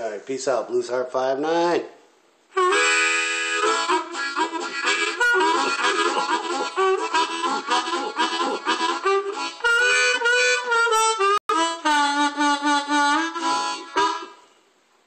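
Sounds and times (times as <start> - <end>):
harmonica playing: 2.5 - 14.6.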